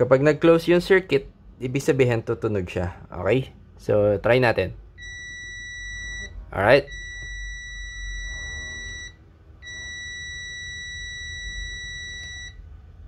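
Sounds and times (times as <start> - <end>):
meter continuity buzzer beep: 5.0 - 12.7.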